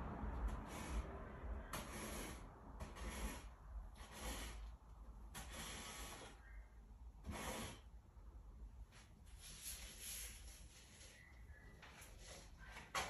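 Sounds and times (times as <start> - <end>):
material stirred in a bucket: 0.6 - 4.8.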